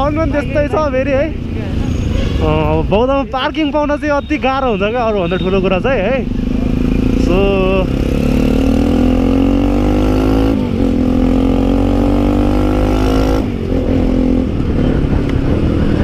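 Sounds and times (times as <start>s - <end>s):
motorcycle engine accelerating: 5.3s - 16.0s.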